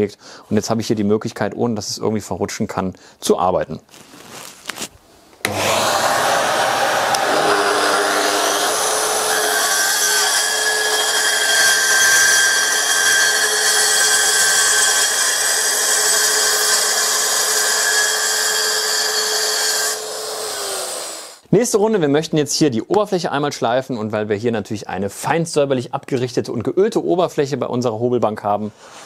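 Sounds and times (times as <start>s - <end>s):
saw cutting wood: 5.4s - 21.4s.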